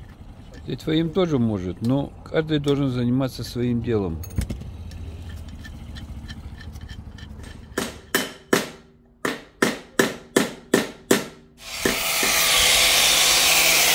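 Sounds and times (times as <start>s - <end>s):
hammer tapping metal: 5.4s - 12.4s
power tool whirring: 11.6s - 13.9s.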